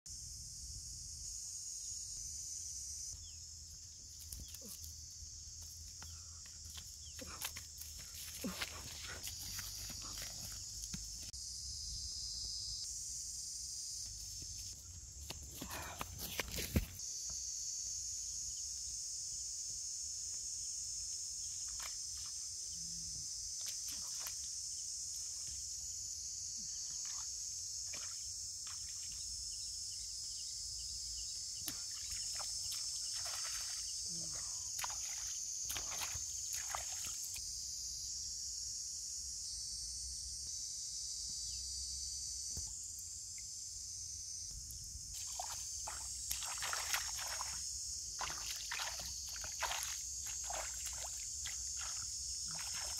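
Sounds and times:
feet wading through shallow water: 0:31.8 - 0:33.9, 0:34.8 - 0:37.3, 0:45.2 - 0:47.6, 0:48.2 - 0:52.9.

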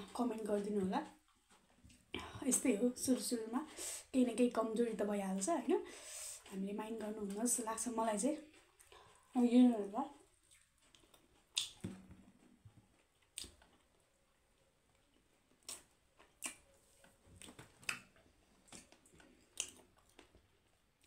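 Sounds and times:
person chewing food: 0:01.1 - 0:02.3, 0:08.4 - 0:09.3, 0:10.2 - 0:21.0
wet mouth smacks: 0:10.5 - 0:12.0, 0:13.2 - 0:13.8, 0:15.6 - 0:16.7, 0:17.4 - 0:20.3.

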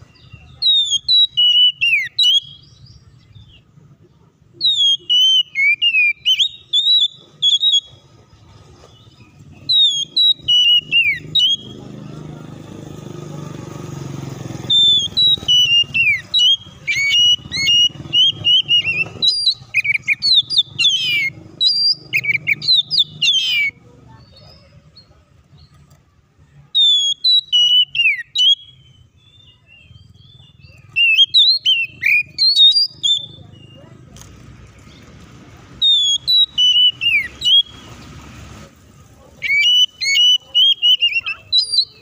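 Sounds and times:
bird singing varied whistles: 0:00.0 - 0:03.6, 0:04.6 - 0:08.1, 0:09.0 - 0:11.8, 0:14.6 - 0:24.4, 0:26.6 - 0:33.9, 0:35.8 - 0:37.9, 0:39.3 - 0:42.0.

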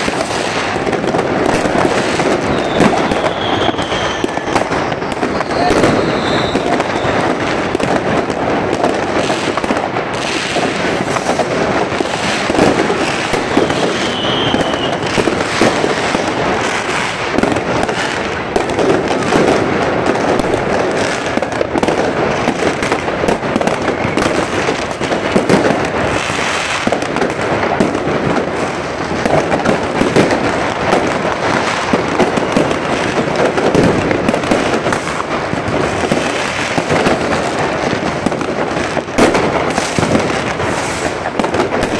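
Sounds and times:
fireworks crackling and banging: 0:00.0 - 0:41.9
firework whistle: 0:01.5 - 0:07.8, 0:09.2 - 0:18.4, 0:22.3 - 0:27.0, 0:39.1 - 0:41.9.

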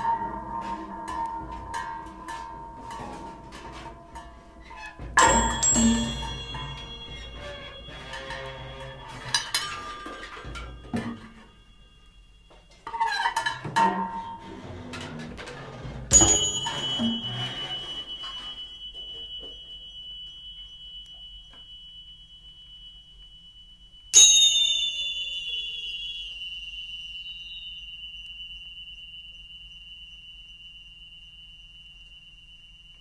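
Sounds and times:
bright metal clang: 0:00.0 - 0:14.4, 0:16.1 - 0:19.8, 0:24.2 - 0:26.7
high ringing metal tone: 0:00.0 - 0:33.0.

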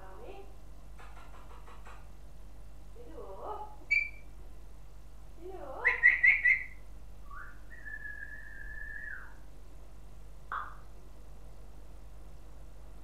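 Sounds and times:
parrot chirp: 0:03.9 - 0:04.3, 0:05.8 - 0:09.4, 0:10.5 - 0:10.8
parrot whistling: 0:03.9 - 0:04.3, 0:05.8 - 0:09.4.

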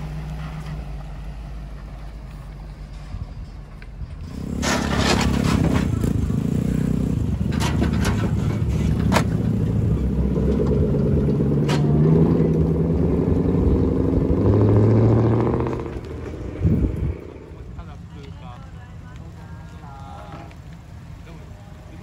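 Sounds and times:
loud car exhausts revving: 0:04.2 - 0:18.0.

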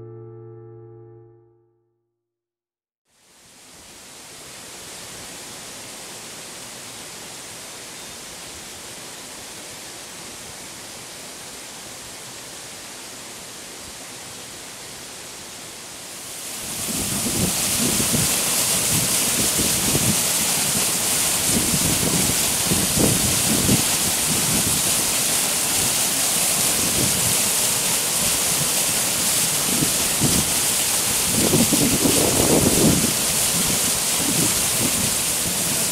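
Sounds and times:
waterfall rushing: 0:16.1 - 0:35.9.

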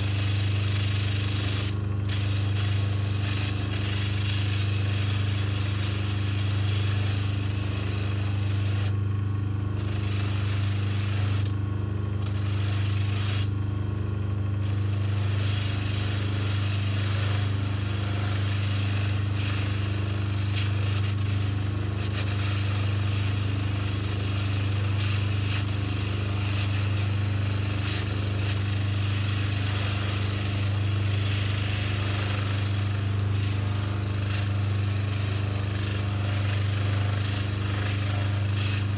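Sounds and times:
bench motor humming: 0:00.0 - 0:09.0, 0:09.7 - 0:13.5, 0:14.5 - 0:38.9
rough sanding hiss: 0:14.6 - 0:38.9.

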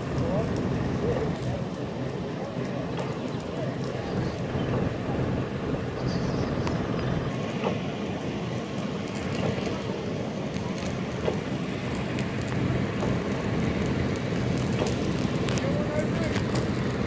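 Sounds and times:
pump running: 0:07.3 - 0:17.0.

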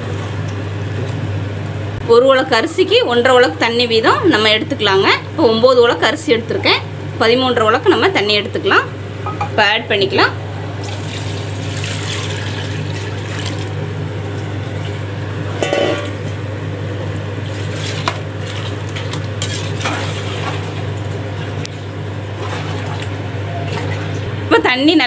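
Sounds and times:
steady low hum: 0:00.0 - 0:25.0
ladle knocking on pot: 0:15.6 - 0:16.1
metal ladle scraping and clinking: 0:15.6 - 0:16.1.

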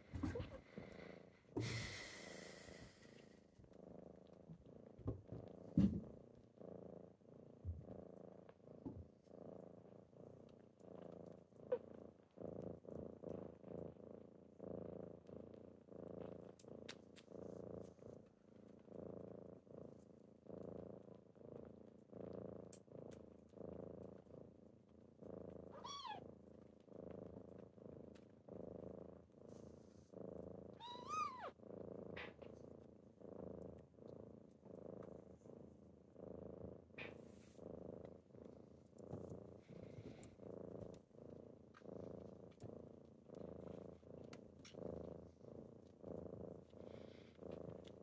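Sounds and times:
kitten purring: 0:00.0 - 0:48.0
kitten mewing: 0:30.8 - 0:31.5.

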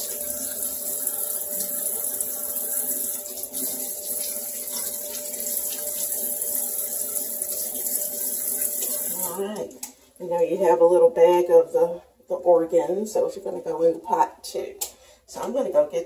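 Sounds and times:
tap water running into sink: 0:00.0 - 0:10.0.

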